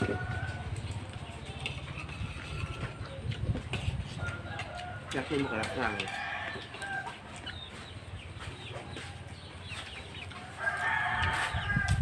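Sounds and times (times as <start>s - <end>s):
chickens clucking: 0.0s - 12.0s
rooster crowing: 4.2s - 7.2s, 10.5s - 12.0s.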